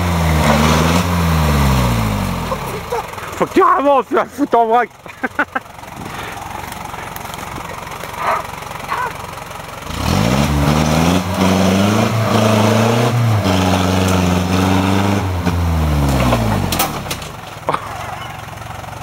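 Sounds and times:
diesel engine revving: 0.0s - 19.0s.

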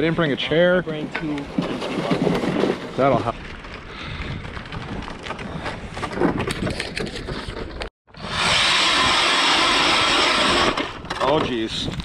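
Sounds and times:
electric ice auger drilling: 8.1s - 11.1s.

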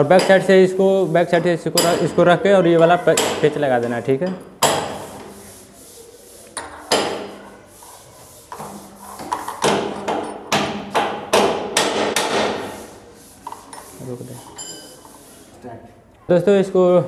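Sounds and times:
sharp knocks on wooden door: 9.6s - 12.6s.

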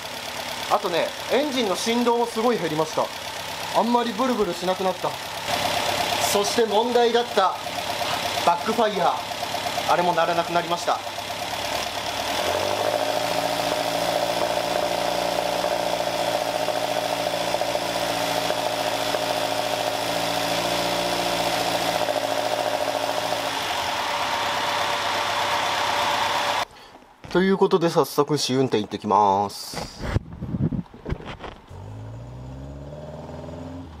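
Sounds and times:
car engine running: 0.0s - 26.6s.

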